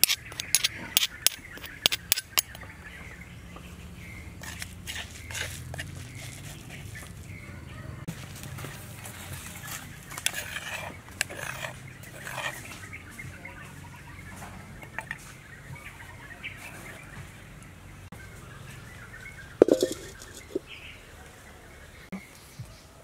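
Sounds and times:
metal spoon scraping plate: 0.0 - 2.6, 4.4 - 6.3, 10.2 - 12.6, 19.6 - 20.7.

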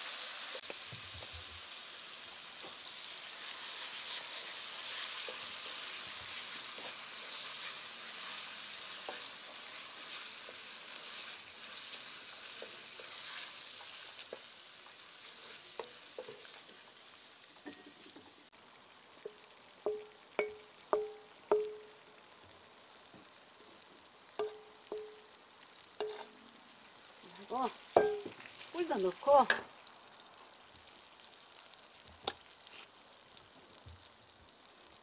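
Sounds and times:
garlic sizzling in hot oil: 0.0 - 35.0
wooden spatula knocking pot: 19.3 - 22.0, 24.4 - 25.2, 28.0 - 28.4.

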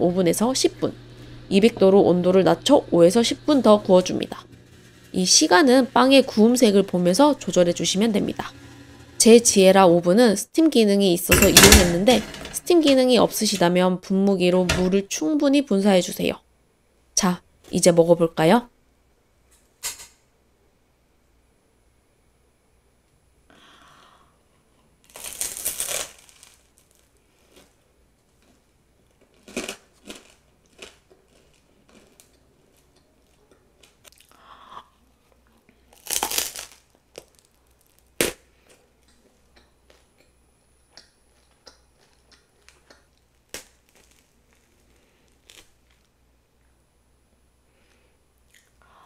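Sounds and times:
crunchy bread bites: 25.0 - 27.8, 28.4 - 34.3, 35.9 - 38.8, 41.3 - 46.2
chewing and tearing bread: 25.0 - 34.4, 35.2 - 40.3, 41.0 - 46.1.

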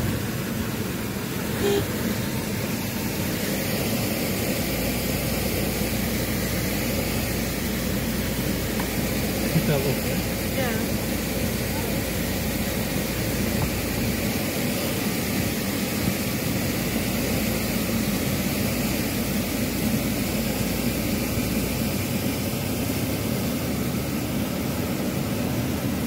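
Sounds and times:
vehicle engine running: 0.0 - 26.0
water rushing around vehicle: 0.0 - 26.0.

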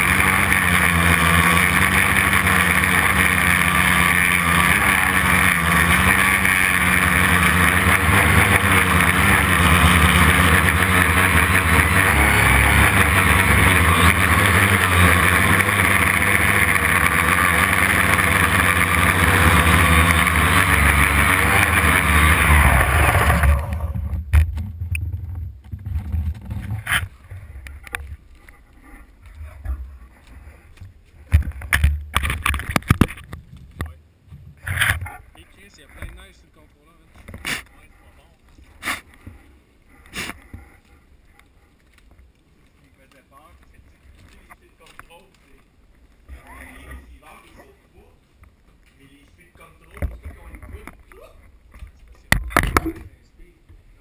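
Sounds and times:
drone motors and propellers: 0.0 - 33.8
scattered clicks and knocks: 31.3 - 35.1.

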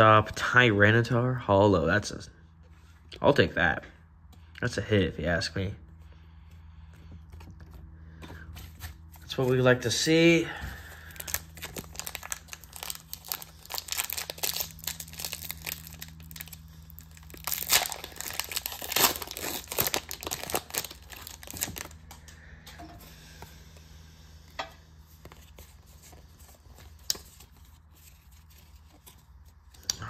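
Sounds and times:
foil wrapper tearing and crinkling: 10.8 - 22.1
cards rustling and clicking: 11.1 - 16.6, 17.2 - 22.3, 25.1 - 30.0.

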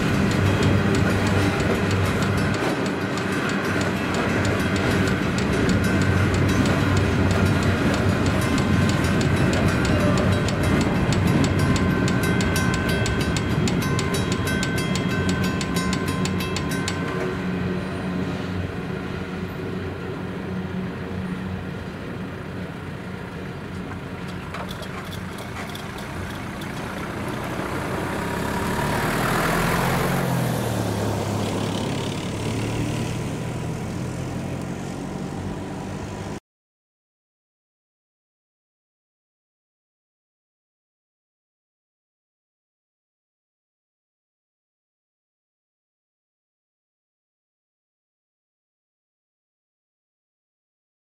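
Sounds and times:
car driving over crossing: 0.0 - 17.2, 23.7 - 36.4
level-crossing bell ringing: 0.0 - 18.2
train wagons rolling over rails: 0.0 - 29.2.

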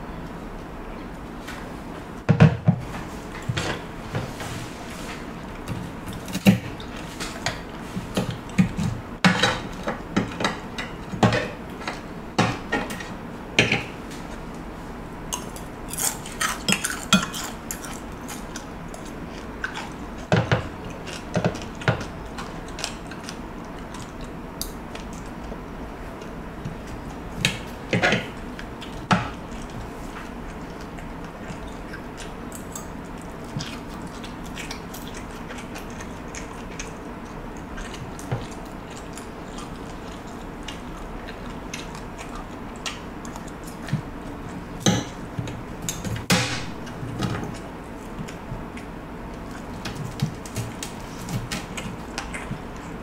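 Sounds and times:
quiet chewing: 15.3 - 46.2, 46.8 - 53.0.

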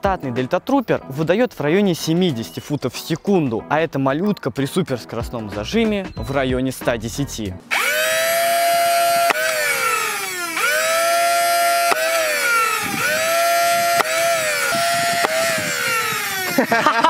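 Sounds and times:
flywheel motors whining: 7.7 - 17.0.

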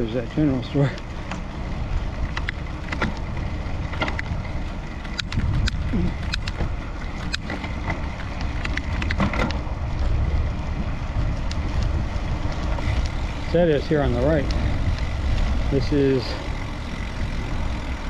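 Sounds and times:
bicycle riding rumble: 0.0 - 18.0
bike clicks and rattles: 0.0 - 18.0.

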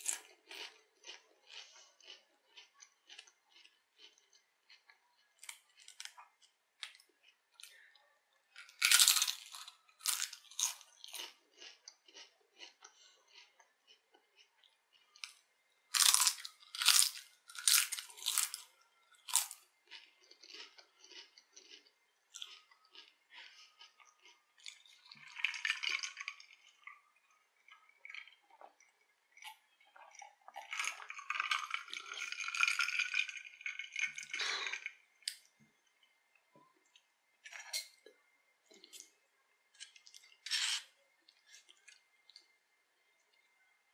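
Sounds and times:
chewing with small crackles: 0.0 - 43.9
crunching crisp chip: 8.6 - 27.0.

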